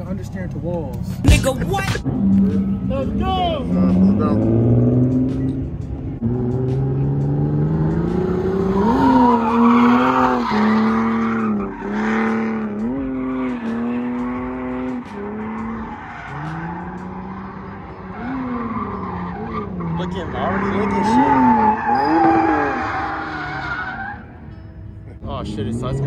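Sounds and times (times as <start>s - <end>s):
tires squealing and skidding: 8.2s - 24.5s.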